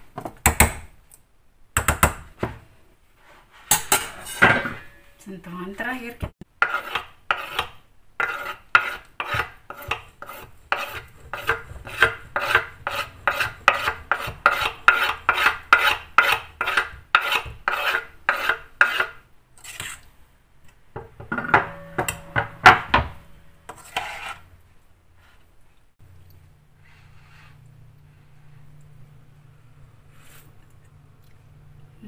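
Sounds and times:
knife scraping cutting board: 6.6 - 20.1, 23.7 - 24.5.

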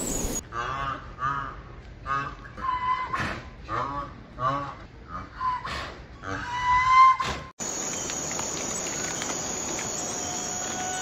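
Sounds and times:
bush cricket stridulating: 7.6 - 11.0.

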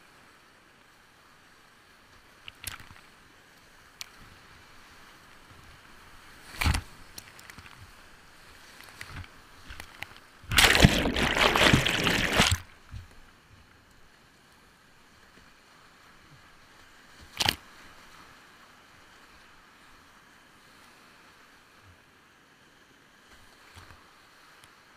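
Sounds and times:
faint river rush: 0.0 - 24.9
water splashing over kayak: 8.4 - 12.8.

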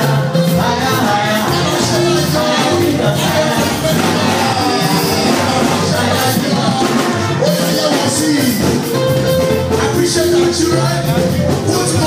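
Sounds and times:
children's choir singing: 0.0 - 8.5
musical accompaniment: 0.0 - 12.0.

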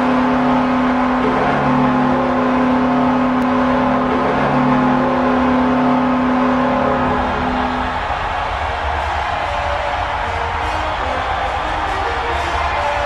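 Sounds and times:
crowd cheering: 0.0 - 13.0
ice hockey goal horn blasts: 0.0 - 13.0.

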